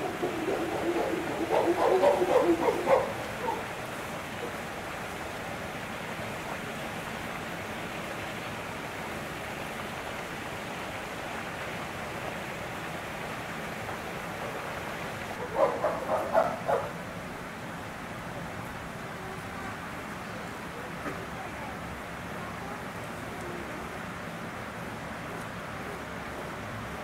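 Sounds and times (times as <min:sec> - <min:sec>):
chimpanzee hoots: 0:00.0 - 0:03.7
background hiss: 0:00.0 - 0:27.0.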